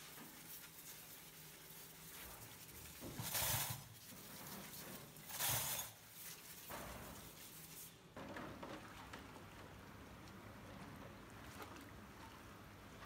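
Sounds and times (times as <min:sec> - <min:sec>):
water spraying on metal cutlery: 0:00.0 - 0:08.0.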